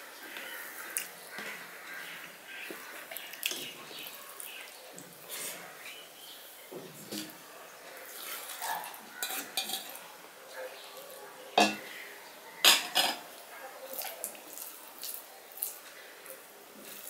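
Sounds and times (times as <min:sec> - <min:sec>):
soft scraping and squishing: 0:00.3 - 0:12.0, 0:13.5 - 0:17.0
steel dishes clinking: 0:09.2 - 0:10.0, 0:11.6 - 0:11.9.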